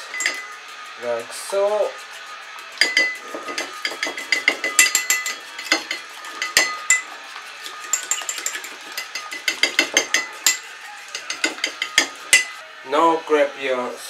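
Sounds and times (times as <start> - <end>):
utensil clinking against bowl: 0.0 - 0.6, 2.8 - 12.6.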